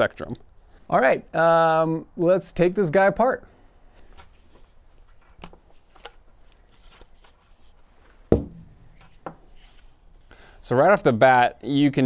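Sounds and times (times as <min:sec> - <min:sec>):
part knocking on wooden workbench: 0:08.3 - 0:09.4.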